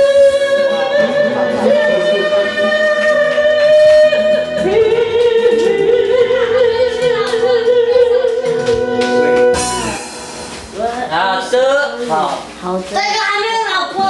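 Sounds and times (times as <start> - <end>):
young woman singing: 0.0 - 9.6
karaoke backing track: 0.0 - 14.0.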